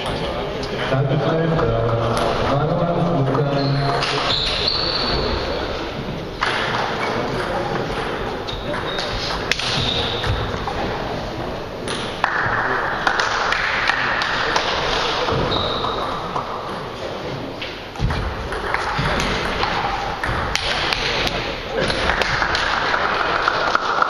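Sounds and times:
large hall noise: 0.0s - 24.0s
table tennis ball bouncing: 6.4s - 10.8s, 11.8s - 16.8s, 17.9s - 24.0s.

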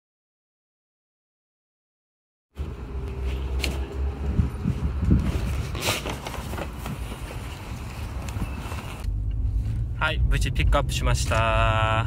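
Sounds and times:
paper bag rustling: 5.2s - 9.0s
car interior hum: 6.7s - 12.0s.

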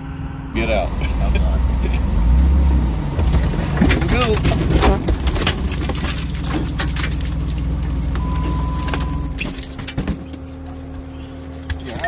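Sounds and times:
engine running under load: 0.0s - 12.0s
vehicle knocks and creaks: 2.4s - 12.0s.

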